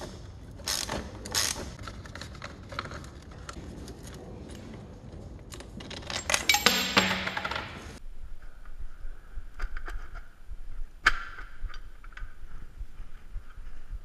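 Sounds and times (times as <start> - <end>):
metal clinking and knocking: 5.6 - 8.0
metallic rattle: 5.9 - 8.0.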